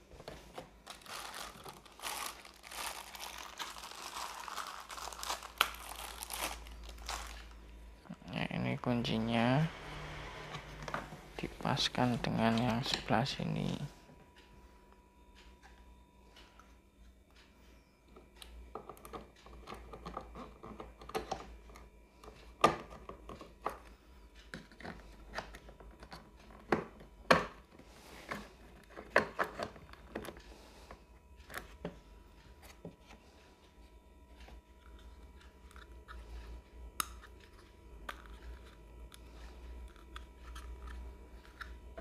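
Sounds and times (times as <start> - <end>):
plastic parts clicking and knocking: 18.7 - 32.0.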